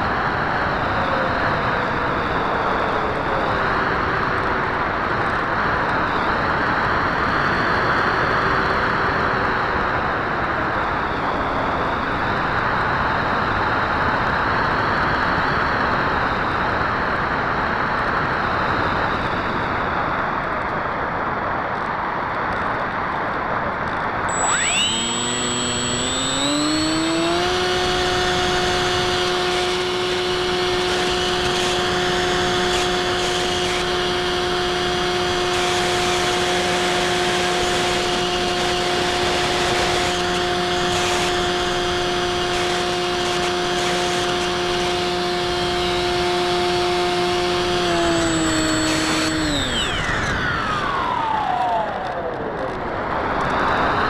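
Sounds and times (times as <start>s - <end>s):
electric motor whine: 24.3s - 52.4s.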